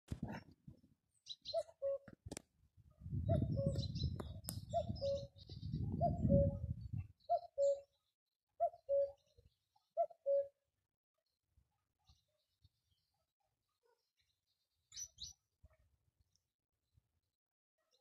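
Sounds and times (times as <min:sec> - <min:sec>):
small birds chirping: 0:01.2 - 0:02.1, 0:03.3 - 0:10.5, 0:14.0 - 0:15.5
cuckoo calling: 0:01.4 - 0:02.1, 0:03.3 - 0:06.7, 0:07.3 - 0:07.9, 0:08.6 - 0:09.2, 0:10.0 - 0:10.6.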